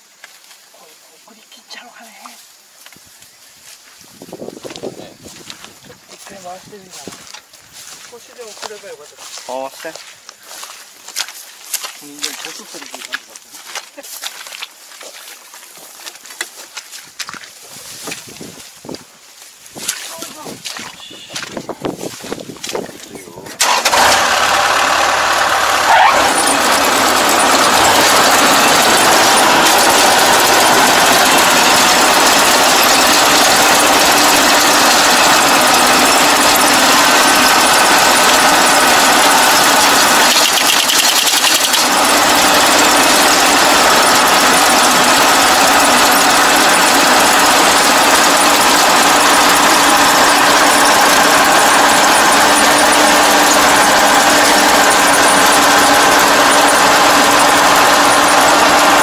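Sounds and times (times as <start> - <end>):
combine harvester running: 3.2 - 59.0.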